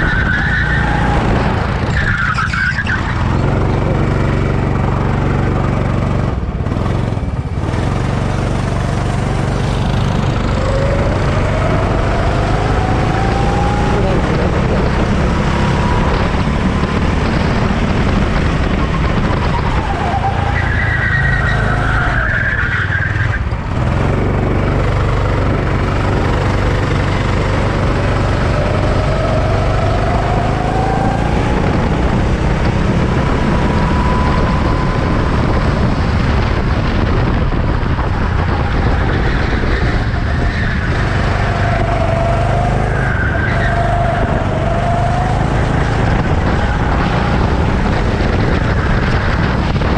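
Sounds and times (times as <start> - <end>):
racing engines accelerating and passing: 0.0 - 49.9
low rumble: 43.3 - 49.9.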